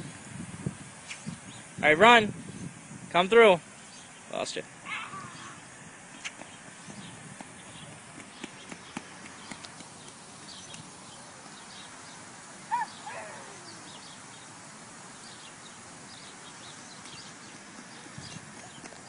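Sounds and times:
small birds chirping: 1.0s - 1.8s, 3.8s - 19.0s
footsteps on wet pavement: 6.2s - 11.7s, 16.9s - 19.0s.

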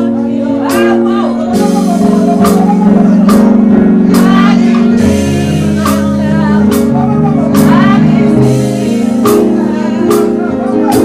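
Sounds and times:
keyboard chords: 0.0s - 11.0s
person singing: 0.0s - 11.0s
sharp percussion strikes: 0.7s - 7.0s.

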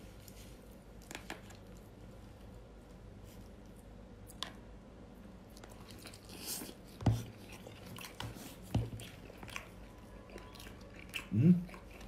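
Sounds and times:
chewing and crackling: 5.4s - 12.0s.

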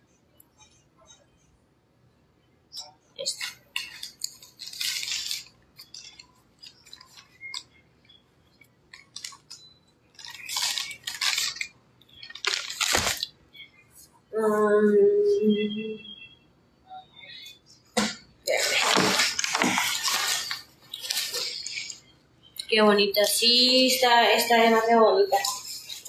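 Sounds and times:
crackling and rustling belongings: 3.2s - 14.1s, 18.0s - 22.2s
hum-like pitched tone: 13.6s - 17.6s.

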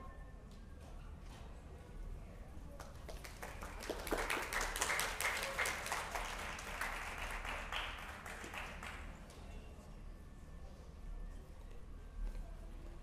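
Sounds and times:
audience applauding: 3.1s - 9.2s.

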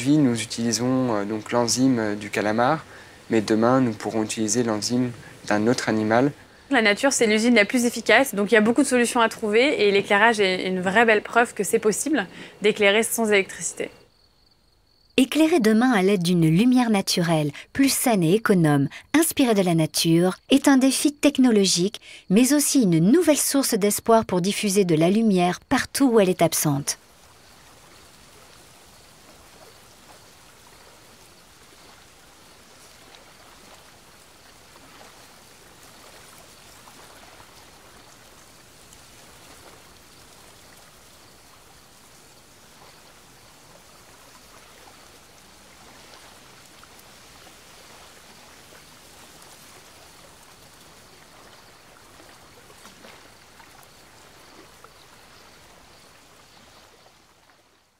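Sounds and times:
water washing: 22.5s - 57.7s
small water splashes: 27.0s - 57.9s.

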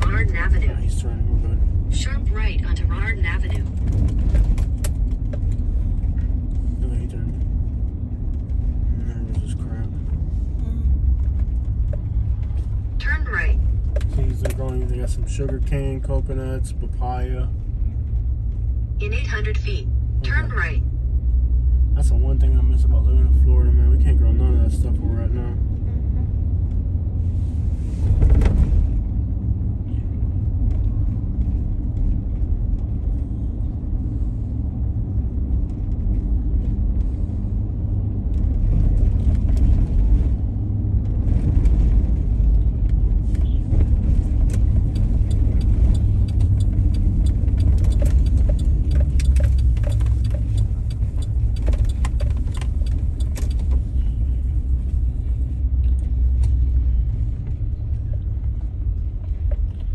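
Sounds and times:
car engine and tyre rumble: 0.0s - 59.9s
light clicks and rattles: 44.5s - 54.1s.

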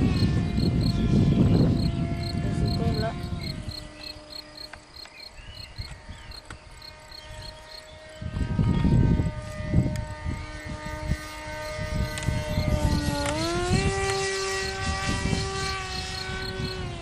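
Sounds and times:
insects chirping: 0.0s - 8.4s, 10.5s - 17.0s
model aircraft motor whining: 0.0s - 17.0s
wind rumble on microphone: 0.0s - 17.0s.

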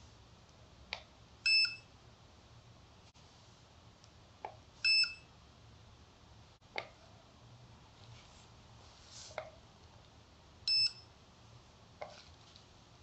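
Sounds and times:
short electronic beeps: 1.5s - 1.9s, 4.8s - 5.3s, 10.7s - 11.1s.

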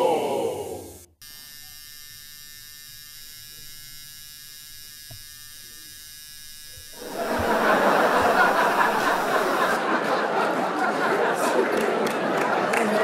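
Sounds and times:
electric buzz: 0.0s - 9.8s
crowd chatter and laughter: 7.0s - 13.0s.

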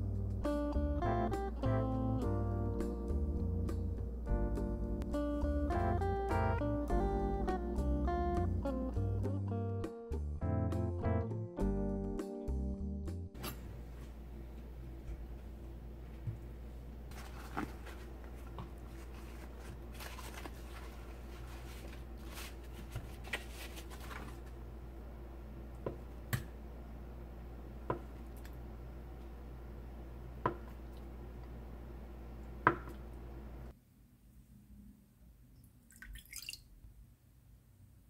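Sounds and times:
low steady hum: 13.4s - 38.0s
soft rustling and handling: 17.1s - 24.6s.

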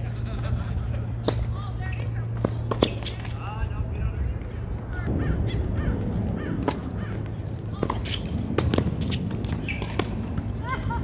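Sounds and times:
steady low rumble: 0.0s - 11.0s
tennis racquet hitting ball: 2.4s - 3.3s, 6.6s - 7.0s.

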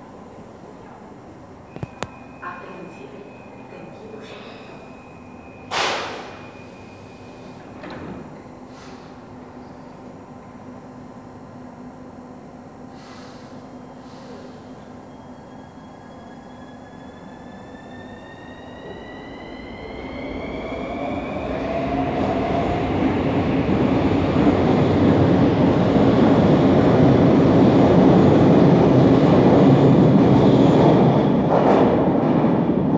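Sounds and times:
train wheels rumbling on rail: 20.6s - 32.9s.

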